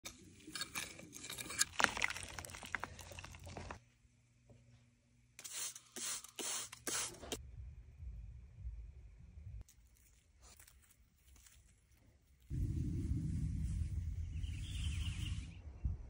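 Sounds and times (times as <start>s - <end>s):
spray bottle squirts: 5.4s - 7.4s
faint hum: 7.4s - 16.0s.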